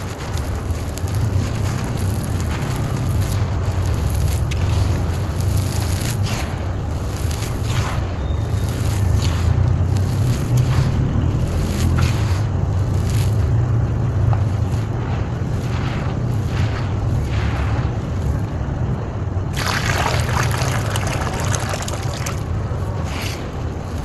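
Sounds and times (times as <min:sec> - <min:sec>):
dry soil rustling by hand: 0:00.0 - 0:18.5, 0:19.5 - 0:24.0
wind rumble on microphone: 0:00.0 - 0:24.0
water pouring into dust: 0:19.5 - 0:22.5.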